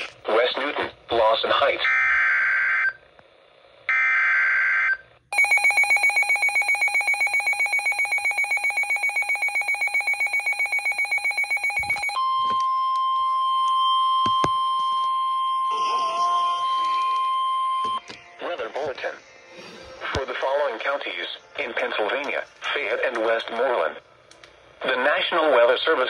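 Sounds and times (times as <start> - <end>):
pulsing alarm beep: 5.3 - 18.0
steady single-tone alert tone: 5.4 - 18.0.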